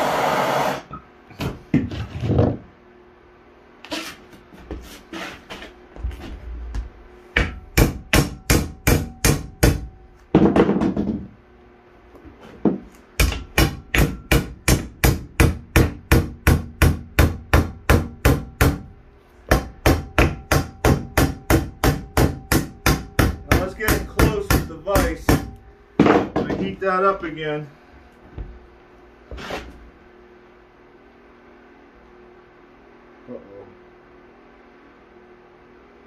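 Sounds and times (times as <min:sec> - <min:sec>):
hammer striking metal rod: 0:07.4 - 0:09.9, 0:13.2 - 0:18.9, 0:19.5 - 0:26.2.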